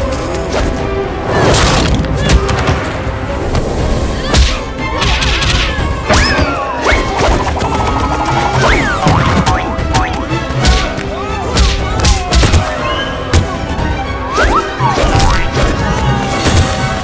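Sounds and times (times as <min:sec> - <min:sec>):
action music: 0:04.6 - 0:17.0
sliding pitched effects: 0:07.0 - 0:10.2.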